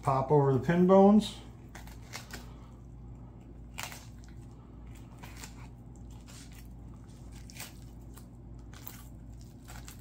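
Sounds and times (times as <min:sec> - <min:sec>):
knife crunching through fish bones: 0:01.6 - 0:02.6, 0:03.5 - 0:10.0.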